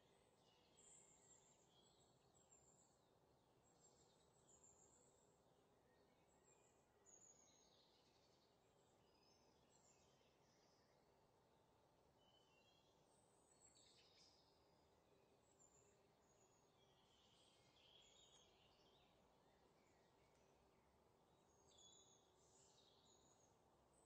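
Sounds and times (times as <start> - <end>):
faint background hiss: 0.0 - 24.0.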